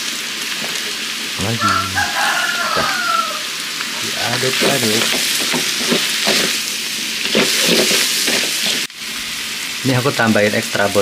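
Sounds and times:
food sizzling in oil: 0.0s - 11.0s
stirring in a pan: 2.1s - 8.9s.

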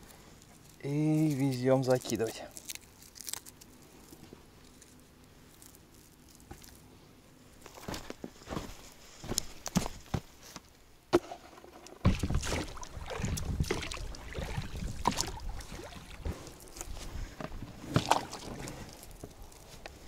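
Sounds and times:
oars rubbing rubber hull: 11.2s - 19.4s
oars in rowlocks: 11.3s - 16.6s, 17.2s - 19.0s
water splashing: 12.0s - 16.6s, 17.8s - 19.0s.

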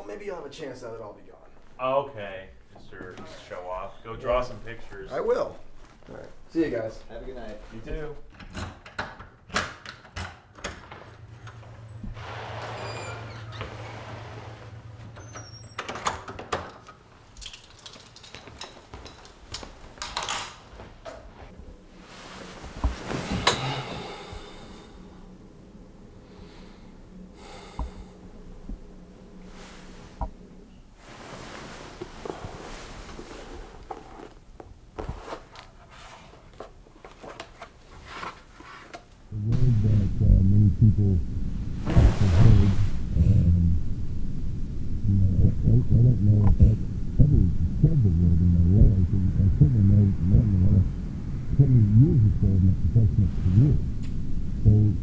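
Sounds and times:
bedding rustling: 11.1s - 15.2s, 18.0s - 24.8s, 29.4s - 39.2s
small objects clicking and knocking: 17.3s - 19.4s.

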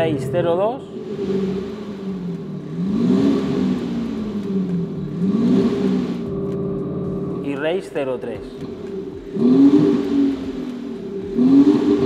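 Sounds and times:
diesel engine idling: 0.0s - 12.0s
diesel engine revving: 0.0s - 12.0s
synthetic exhaust sound from speakers: 9.0s - 12.0s.

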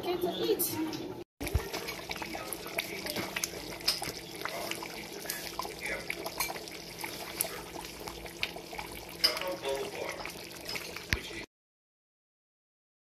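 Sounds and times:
thick soup bubbling in pot: 1.4s - 11.5s.

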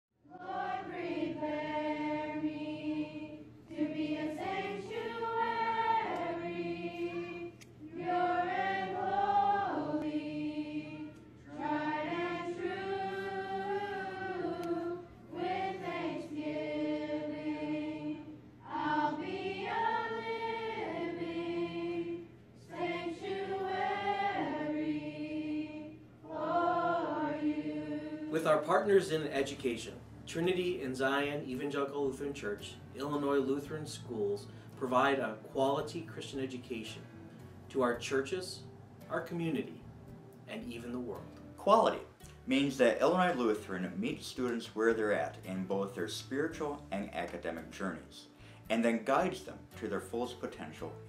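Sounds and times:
choir singing: 0.2s - 37.0s.

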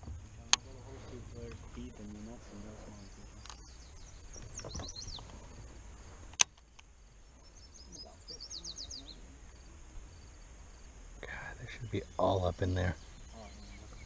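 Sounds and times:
songbird singing high notes: 7.4s - 9.3s.

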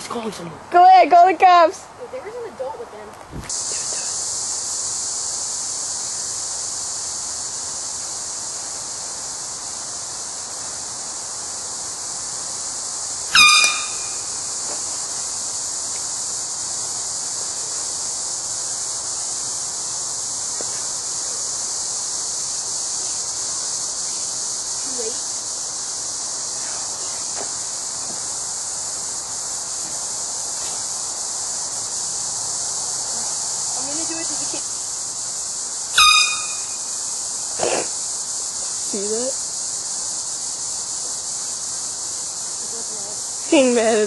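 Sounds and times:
high-pitched insect buzz: 3.4s - 44.0s
air horn blast: 13.3s - 14.3s, 36.0s - 36.9s.

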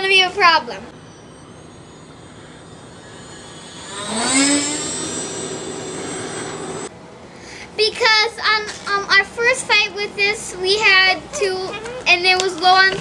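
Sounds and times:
model jet fan whine: 0.9s - 7.1s.

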